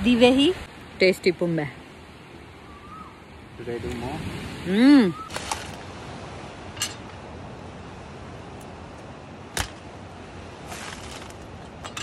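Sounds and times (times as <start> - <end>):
steady background hiss: 0.1 - 12.0
sharp crack: 9.5 - 11.6
husk tearing scrapes: 10.6 - 11.5.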